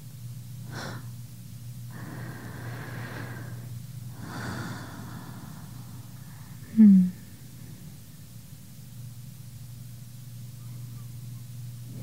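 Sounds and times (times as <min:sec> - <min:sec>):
steady low hum: 0:00.0 - 0:12.0
woman breathing slowly: 0:00.6 - 0:01.1, 0:01.9 - 0:08.0.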